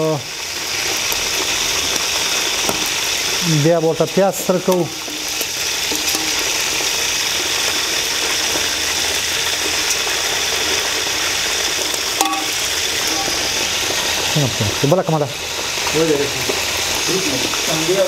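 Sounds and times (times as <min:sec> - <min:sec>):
food sizzling in hot oil: 0:00.0 - 0:18.0
ladle turning food in pot: 0:01.3 - 0:14.3.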